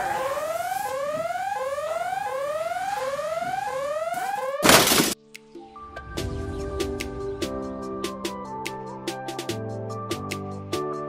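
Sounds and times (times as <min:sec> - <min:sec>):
alarm siren whooping: 0:00.0 - 0:05.2.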